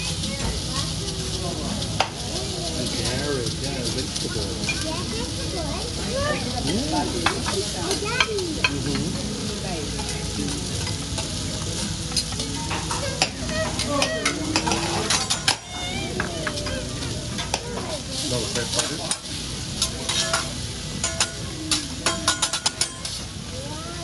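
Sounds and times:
vegetables sizzling on griddle: 0.0 - 24.0
metal spatulas scraping steel: 12.1 - 15.8, 18.2 - 23.2.

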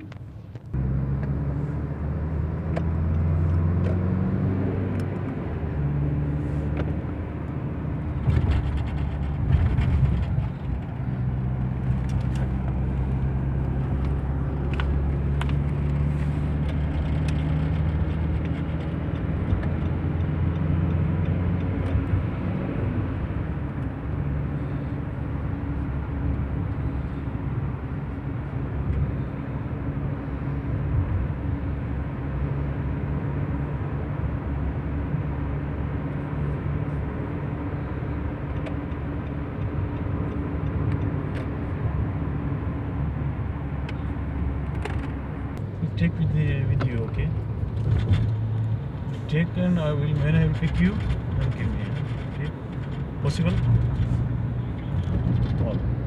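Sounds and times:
car engine and road hum: 0.0 - 56.0.

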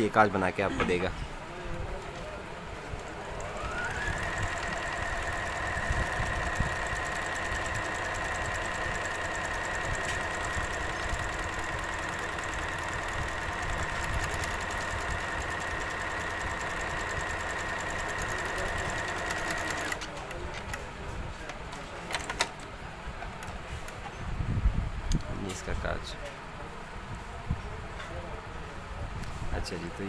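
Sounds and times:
sewing machine running: 3.0 - 20.2.

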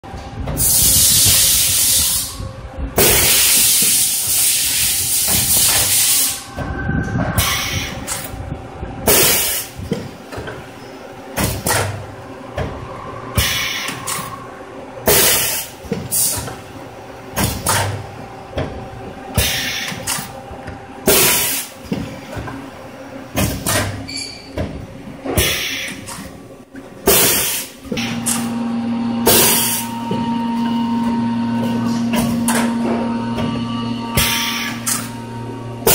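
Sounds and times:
conveyor mechanical clatter: 0.0 - 35.9
steady hum: 0.0 - 35.9
pneumatic air hiss: 0.6 - 2.4, 3.0 - 6.5, 7.4 - 8.3, 13.4 - 14.4, 19.4 - 20.2, 25.4 - 26.0, 34.2 - 35.1.

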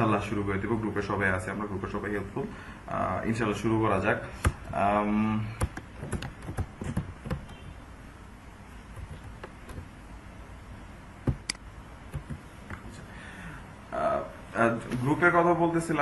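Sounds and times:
low steady hiss: 0.0 - 16.0
clicks and knocks at a desk: 5.6 - 7.8, 8.9 - 10.0, 11.2 - 13.0.

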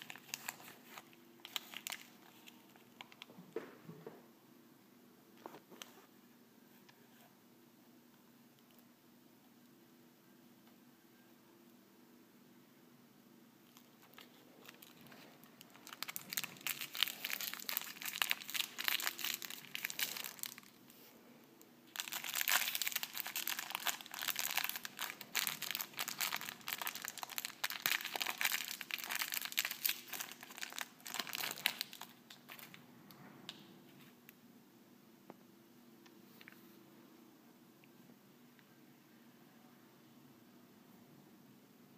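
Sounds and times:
plastic wrapper crinkling: 0.0 - 3.3, 13.7 - 20.9, 21.9 - 32.8.

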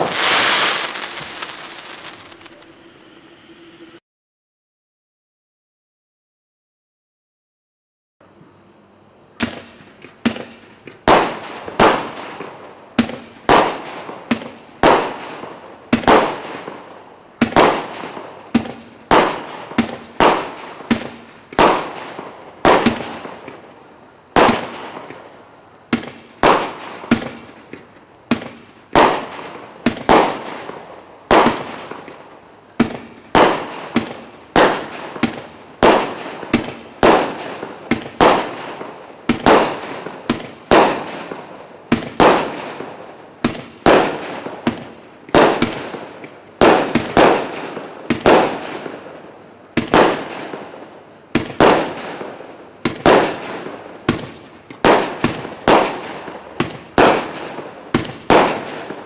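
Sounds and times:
fireworks barrage reports: 0.0 - 3.2.

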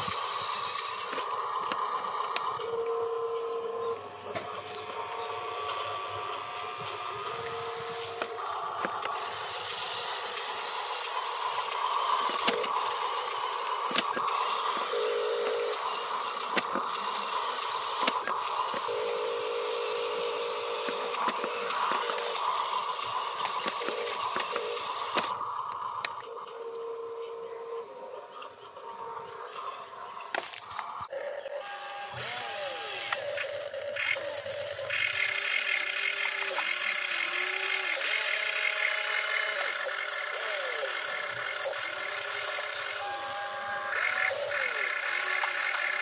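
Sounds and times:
toy electric motors whining: 0.0 - 46.0
sharp clicks: 4.2 - 19.4, 20.7 - 26.8, 33.0 - 43.3
short steady tones: 31.6 - 46.0.

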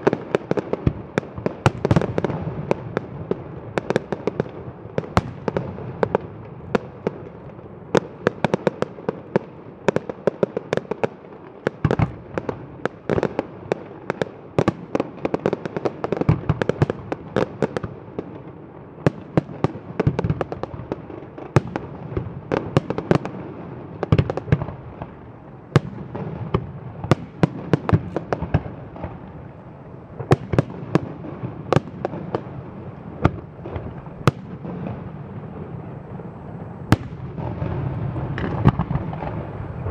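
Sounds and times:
fireworks sharp bangs: 0.0 - 29.5, 30.1 - 39.9.

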